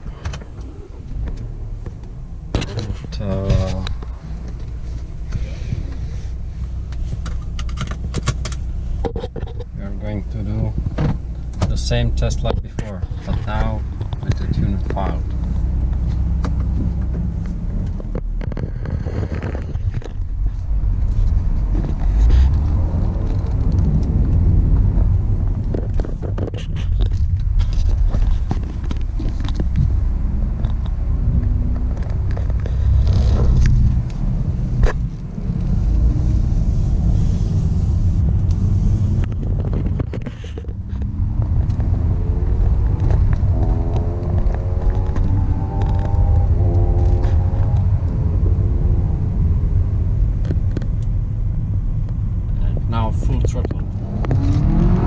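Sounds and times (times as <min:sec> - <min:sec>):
low rumble of engine and road: 0:00.0 - 0:55.0
tone rising in steps: 0:40.7 - 0:49.6.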